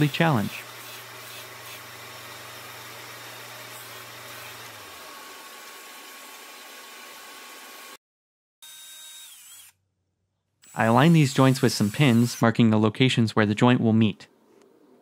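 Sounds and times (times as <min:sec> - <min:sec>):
disc sander motor humming: 0:00.0 - 0:08.0
sander disc spinning down: 0:00.0 - 0:08.0.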